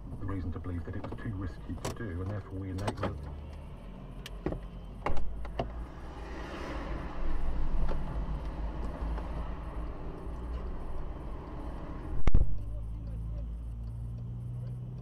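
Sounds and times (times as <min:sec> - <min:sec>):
rumble of passing traffic: 0:00.0 - 0:15.0
vehicle passing: 0:03.1 - 0:15.0.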